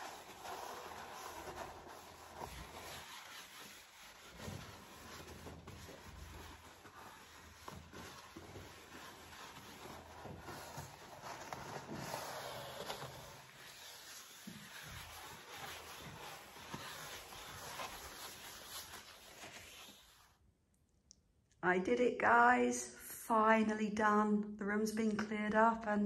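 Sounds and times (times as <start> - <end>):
cloth wiping wood: 0.0 - 20.3.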